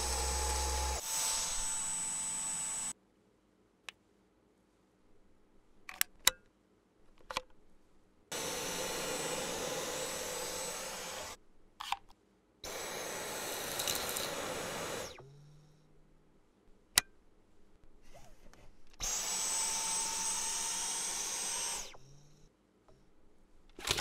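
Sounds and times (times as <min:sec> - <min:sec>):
vacuum motor whining: 0:00.0 - 0:02.9, 0:08.3 - 0:11.4, 0:12.7 - 0:15.4, 0:19.0 - 0:22.2.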